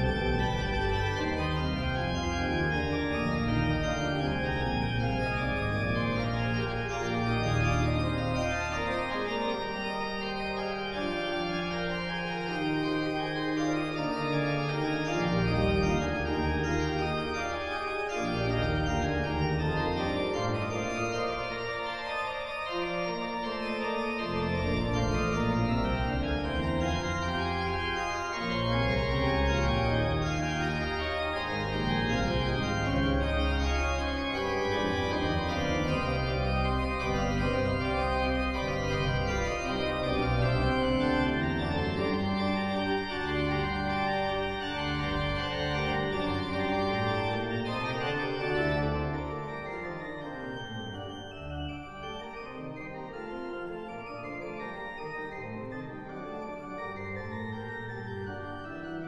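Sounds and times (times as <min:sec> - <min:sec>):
organ playing slow chords: 0:00.0 - 0:59.0.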